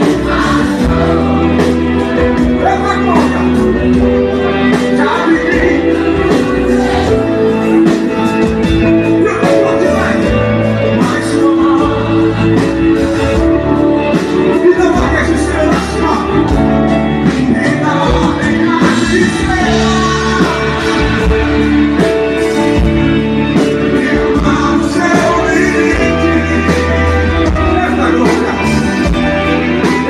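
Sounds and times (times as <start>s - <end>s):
electric guitar: 0.0s - 30.0s
live gospel band music: 0.0s - 30.0s
man singing into microphone: 4.7s - 7.4s, 9.2s - 12.9s, 14.4s - 21.4s, 23.6s - 30.0s.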